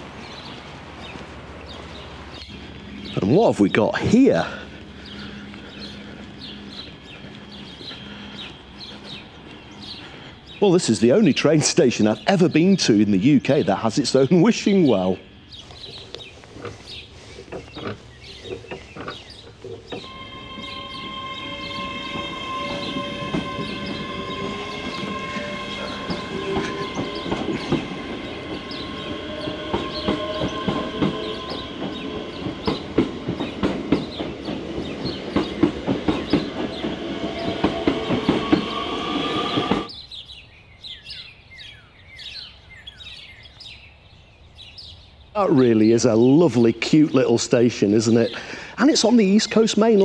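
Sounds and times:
birds chirping: 0.0 - 50.0
train wheels clattering on rails: 15.8 - 39.9.

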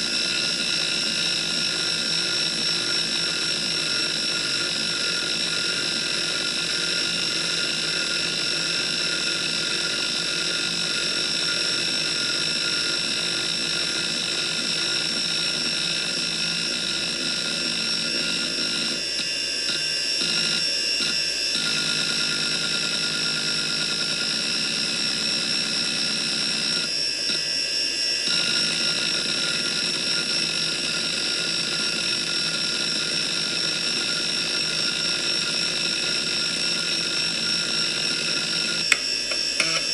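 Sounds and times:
hard disk spindle whine: 0.0 - 39.9.

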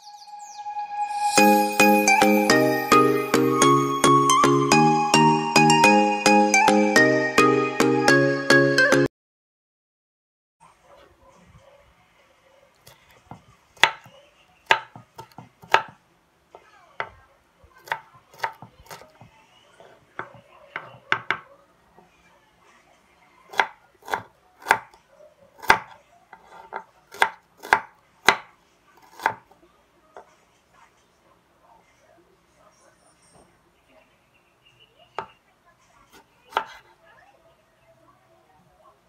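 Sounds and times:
knife knocking on wooden board: 14.7 - 16.0, 17.8 - 21.5.

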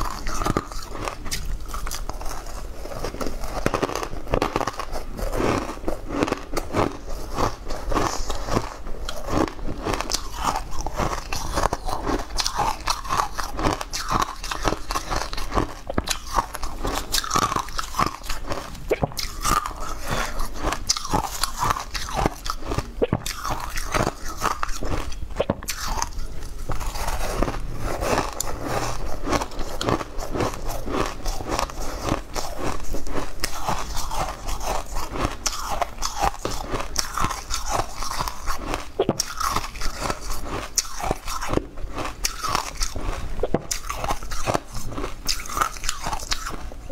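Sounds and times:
chewing crushed ice: 0.0 - 46.9.

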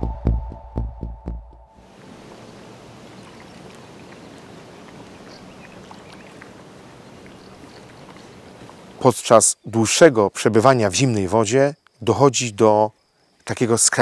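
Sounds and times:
lake water lapping and splashing: 1.8 - 10.7.

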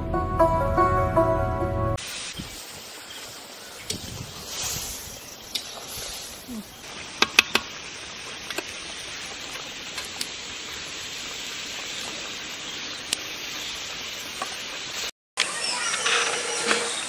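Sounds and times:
chicken sizzling in hot oil: 2.0 - 15.1.

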